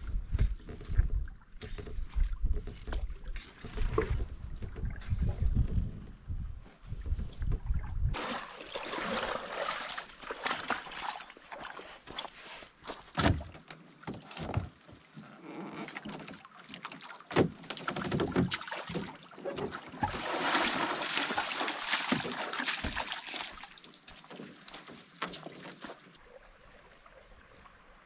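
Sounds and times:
water sloshing around hull: 0.0s - 28.0s
splashing steps in shallow water: 8.1s - 13.4s, 16.0s - 26.2s.

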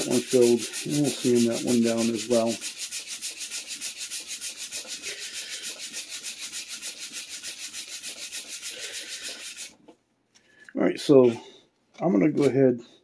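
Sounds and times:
hand sanding wood: 0.0s - 9.8s.

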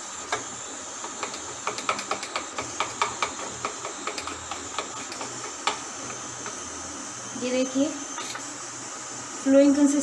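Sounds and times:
batter being beaten in a bowl: 0.4s - 6.5s.

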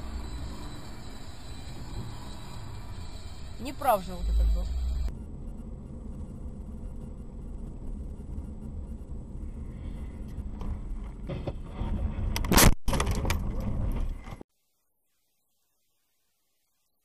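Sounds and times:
road and engine rumble: 0.0s - 14.4s.

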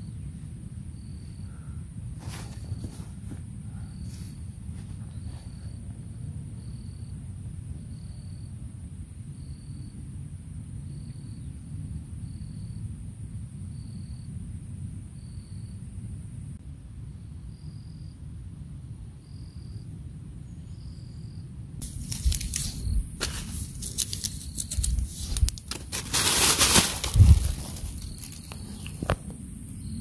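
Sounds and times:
insects chirping: 0.0s - 16.6s, 17.5s - 18.2s, 19.2s - 30.0s
plastic bag crinkling: 21.8s - 29.2s.

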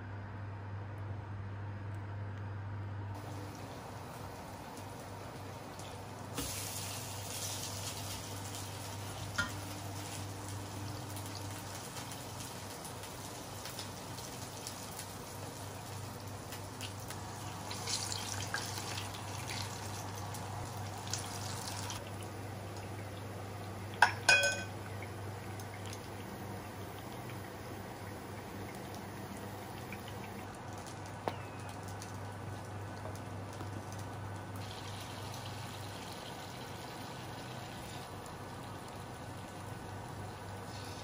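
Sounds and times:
low steady hum: 0.0s - 41.0s
kitchenware clinking: 9.4s - 9.6s, 24.0s - 24.8s
hiss: 40.6s - 41.0s.

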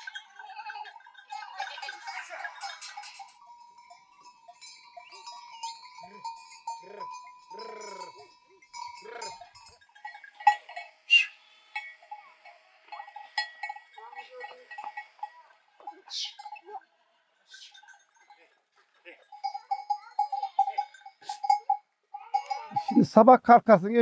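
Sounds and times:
goat bells clanking: 0.0s - 24.0s
goats bleating: 5.2s - 9.6s.

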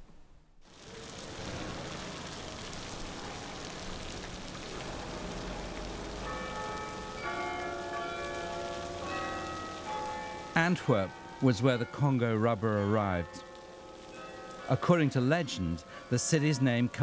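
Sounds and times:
steady outdoor hiss: 0.0s - 17.0s
church bells ringing: 4.7s - 17.0s.

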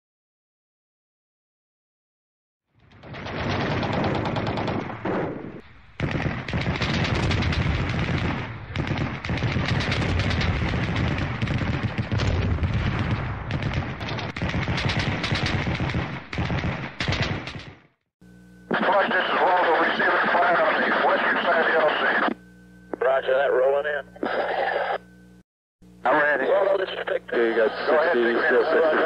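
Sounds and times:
automatic gunfire: 3.0s - 17.9s.

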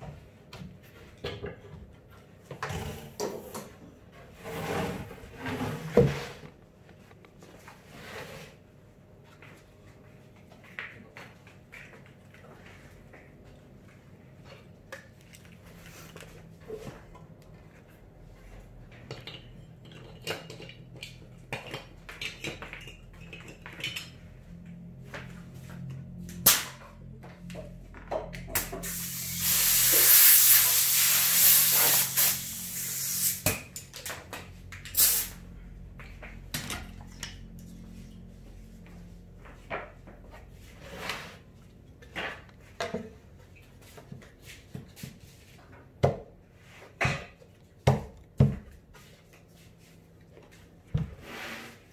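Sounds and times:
compressed air hissing: 28.6s - 33.5s, 35.0s - 35.4s.

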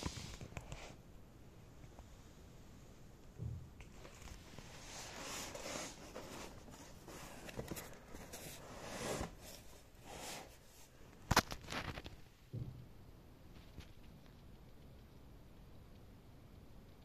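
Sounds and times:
cardboard scraping and rustling: 3.9s - 10.9s.

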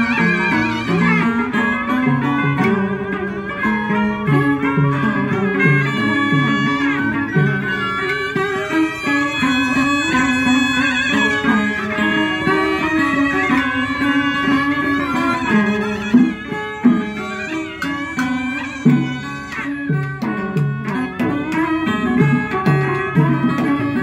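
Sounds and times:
bamboo flute: 0.0s - 24.0s
moon lute: 0.0s - 24.0s
sharp percussion strikes: 0.0s - 24.0s
two-string fiddles: 0.0s - 24.0s
zither: 0.0s - 24.0s.

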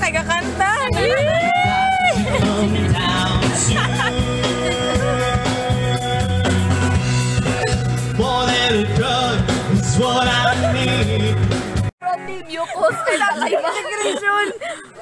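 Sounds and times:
pop backing track: 0.0s - 11.9s
person singing karaoke: 0.9s - 11.8s.

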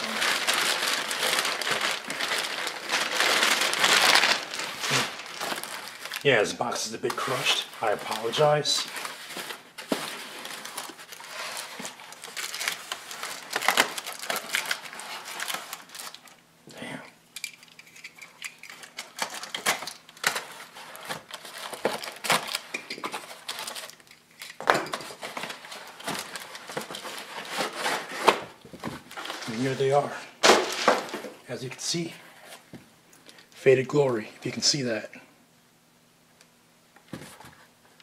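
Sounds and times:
paper and cardboard crinkling: 0.0s - 16.4s, 17.7s - 31.8s.

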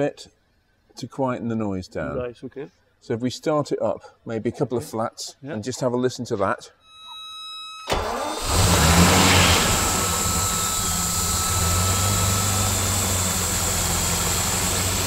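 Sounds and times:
engine starting and idling: 7.9s - 15.0s.

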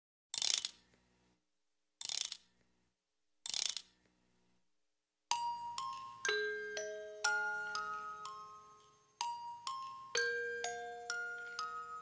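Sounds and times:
music box winding ratchet clicks: 0.4s - 0.8s, 2.0s - 2.5s, 3.5s - 4.0s
music box melody: 5.3s - 12.0s.

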